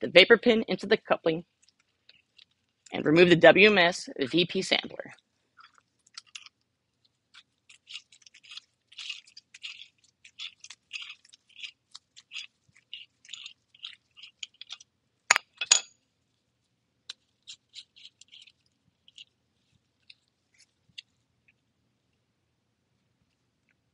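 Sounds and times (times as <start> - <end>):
metal tool parts ticking and scraping: 15.6 - 15.9.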